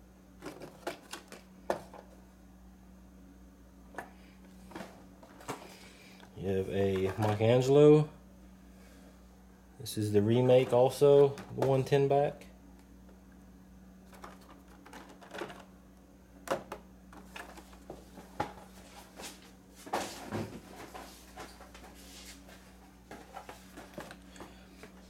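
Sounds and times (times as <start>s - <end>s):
steady low hum: 0.0s - 25.0s
plastic packs knocking and rustling: 0.4s - 2.1s, 6.8s - 7.7s, 10.6s - 12.0s, 14.1s - 15.7s, 16.4s - 19.2s, 19.8s - 22.0s, 23.0s - 25.0s.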